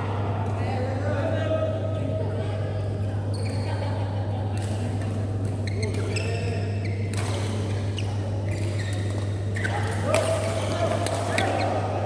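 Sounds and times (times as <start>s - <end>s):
shoes squeaking on court: 5.4s - 10.0s.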